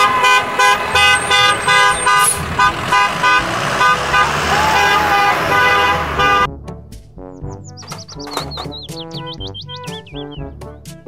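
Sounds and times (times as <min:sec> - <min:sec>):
horn tooting: 0:00.0 - 0:06.5.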